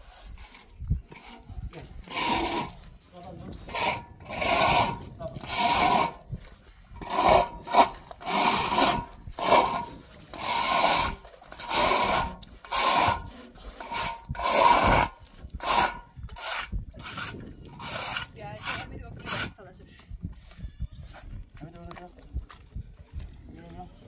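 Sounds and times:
handsaw cutting wood: 0:00.0 - 0:06.3, 0:07.0 - 0:19.6.

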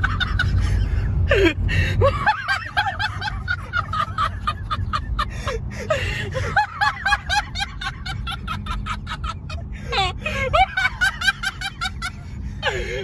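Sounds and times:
car driving rumble: 0:00.0 - 0:13.0.

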